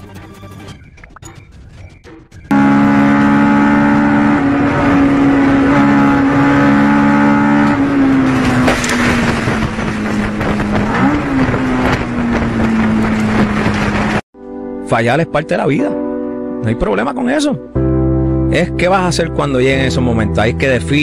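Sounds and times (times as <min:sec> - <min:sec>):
race car engine at high revs: 0:02.5 - 0:14.2.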